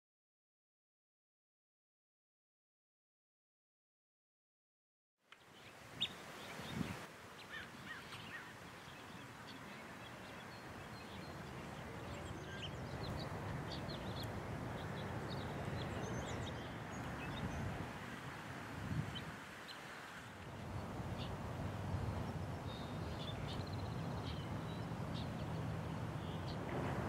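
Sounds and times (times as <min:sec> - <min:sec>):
steady background hiss: 0:05.3 - 0:27.0
birds chirping and calling: 0:05.6 - 0:17.7, 0:20.4 - 0:26.6.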